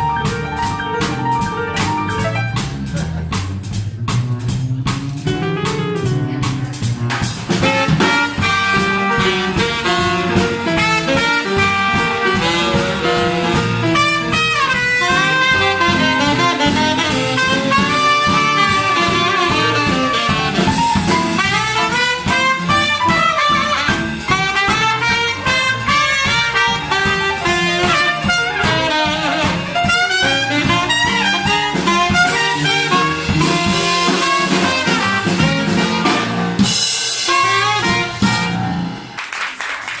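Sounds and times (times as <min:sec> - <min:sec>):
double bass: 0:00.0 - 0:39.2
drum kit: 0:00.0 - 0:40.0
piano: 0:00.0 - 0:40.0
tenor saxophone: 0:07.6 - 0:39.1
trumpet: 0:07.6 - 0:39.2.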